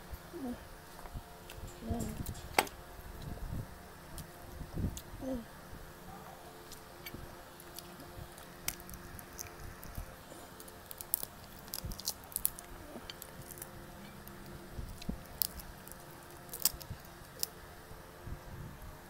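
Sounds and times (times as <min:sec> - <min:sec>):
chewing and wet mouth sounds: 0:06.7 - 0:17.5.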